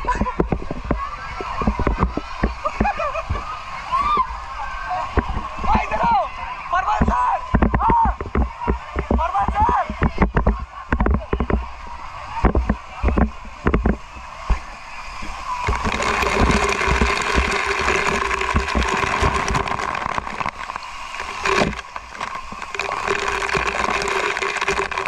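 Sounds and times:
water spray falling into pool: 7.4 - 25.0.

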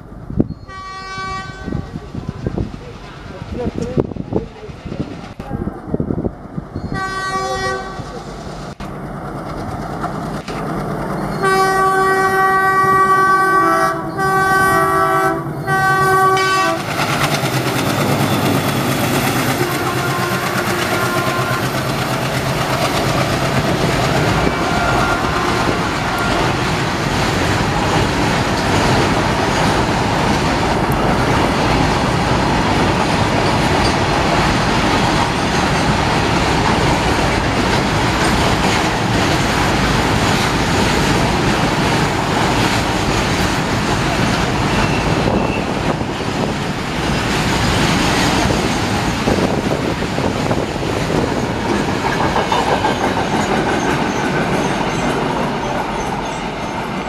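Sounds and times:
freight train rumble and wheel clatter: 0.0 - 57.0
locomotive air horn blasts: 0.7 - 1.8, 7.0 - 8.2, 11.4 - 16.8, 19.6 - 21.8, 24.4 - 26.6.

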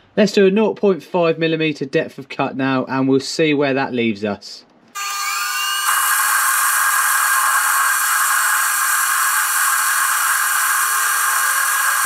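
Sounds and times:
lathe cutting steel hiss: 5.0 - 12.0.

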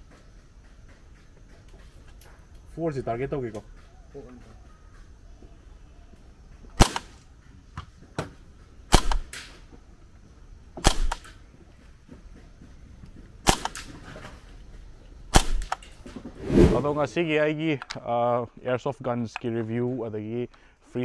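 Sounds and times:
airsoft rifle shots: 6.8 - 7.2, 8.9 - 9.6, 10.8 - 11.4, 13.4 - 14.0, 15.3 - 15.8.

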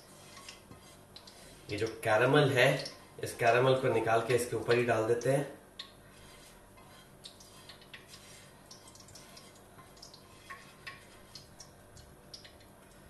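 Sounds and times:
spatula scraping a frying pan: 0.0 - 2.4, 6.0 - 11.6.

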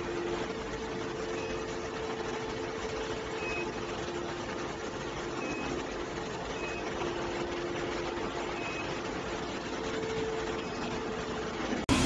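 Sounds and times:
power supply hum and fan: 0.0 - 12.0
faint high beeps: 3.4 - 3.8.

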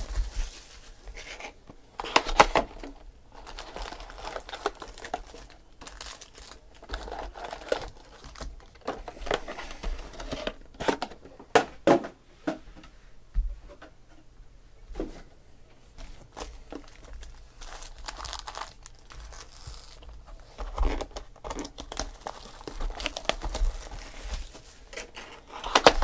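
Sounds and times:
foil crinkling: 0.0 - 10.6, 16.2 - 26.0
cardboard rustling: 0.0 - 11.7, 16.0 - 26.0.

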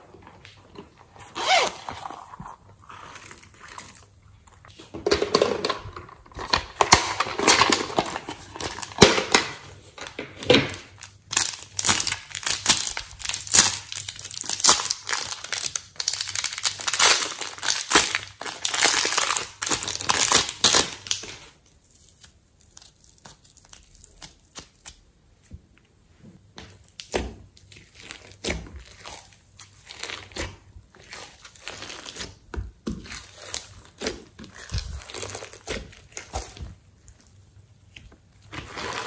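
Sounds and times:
plastic piping bag crinkling: 5.7 - 25.1, 26.8 - 39.0.

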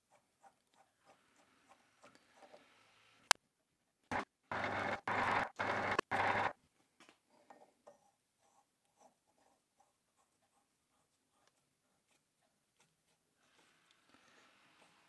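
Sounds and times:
lathe cutting: 4.1 - 6.5.

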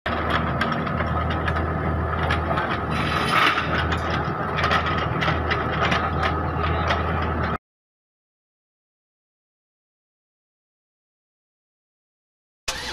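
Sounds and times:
excavator diesel engine running: 0.1 - 7.6, 12.7 - 12.9.

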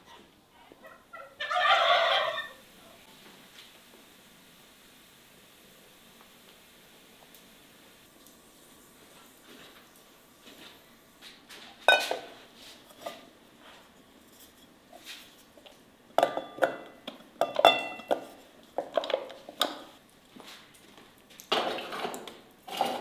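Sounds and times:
kitchenware clinking and knocking: 11.8 - 12.4, 16.2 - 19.9, 21.5 - 23.0.

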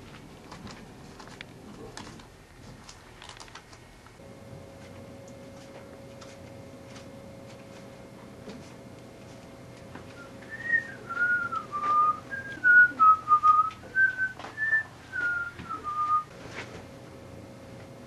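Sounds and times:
faint steady hum: 0.0 - 18.0
person whistling a tune: 10.2 - 16.3.

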